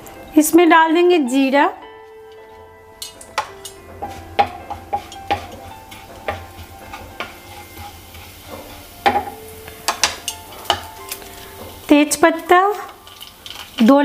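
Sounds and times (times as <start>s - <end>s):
wooden spatula tapping a pan: 3.0s - 11.0s
seeds sizzling in hot oil: 3.0s - 14.0s.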